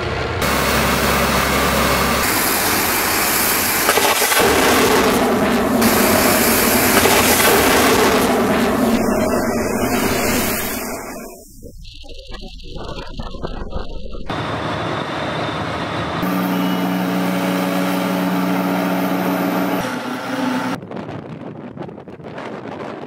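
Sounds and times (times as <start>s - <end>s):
heavy vehicle engines running: 0.0s - 11.5s, 14.3s - 20.8s
missile launch rushing roar: 0.0s - 11.6s, 14.3s - 20.8s.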